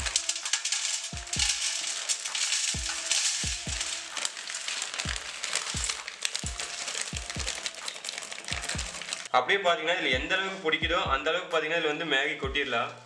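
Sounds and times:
water boiling and sizzling: 0.0s - 9.3s.

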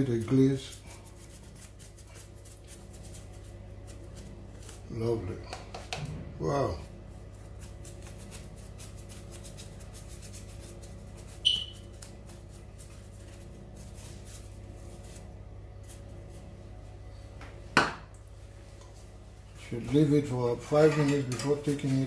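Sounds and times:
steady low hum: 0.0s - 22.0s
kitchenware clinking: 20.7s - 21.8s.

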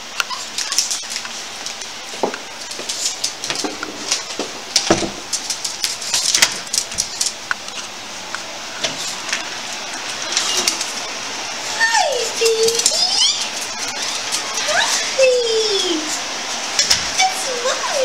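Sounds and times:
dog claws clicking on tile: 0.2s - 7.8s.

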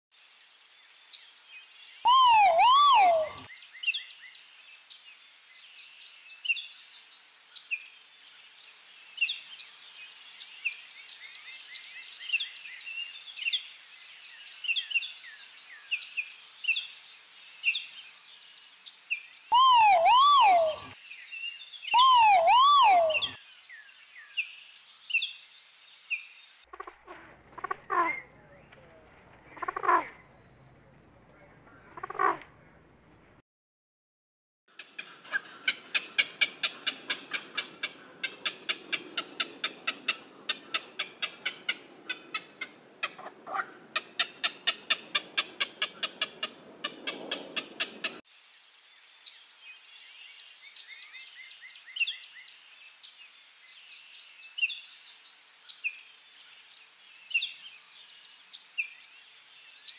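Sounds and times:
short bird chirps: 2.0s - 3.5s, 19.5s - 21.0s, 21.9s - 23.4s
pheasant two-note calls: 2.1s - 3.4s.

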